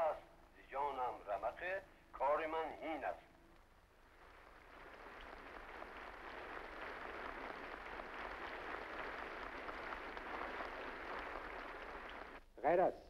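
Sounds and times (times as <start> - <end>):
audience applauding: 3.8 - 12.4.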